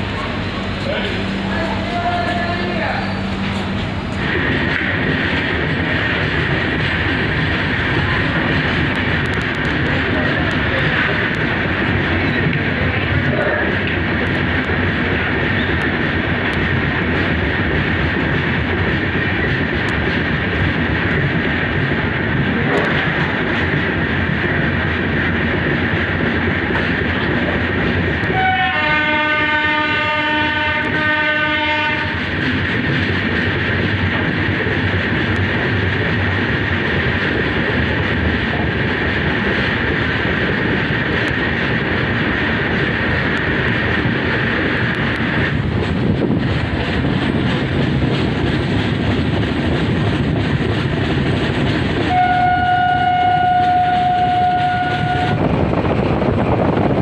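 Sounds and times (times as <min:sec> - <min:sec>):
train wheels rumbling on rails: 0:00.0 - 0:57.0
train horn blast: 0:28.2 - 0:32.2, 0:52.1 - 0:55.4.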